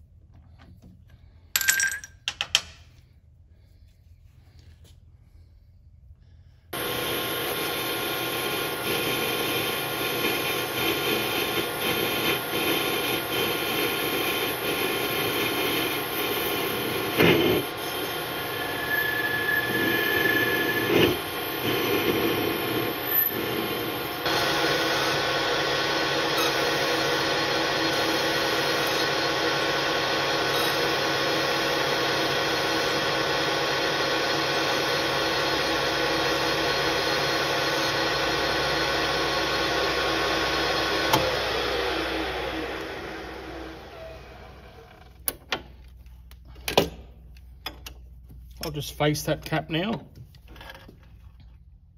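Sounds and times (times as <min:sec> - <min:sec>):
lathe running: 0:06.8 - 0:44.9.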